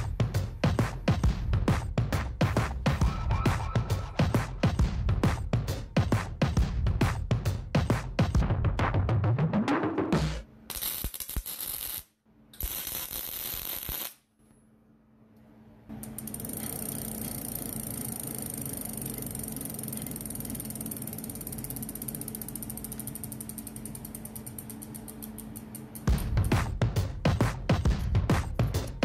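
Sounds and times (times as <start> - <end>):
welding crackling: 10.7 - 14.2
mechanical hum with fast clicking: 15.3 - 29.0.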